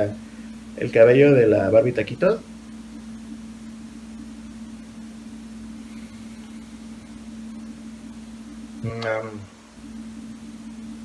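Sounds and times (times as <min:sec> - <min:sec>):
constant hiss: 0:00.0 - 0:11.0
low electrical hum: 0:00.0 - 0:11.0.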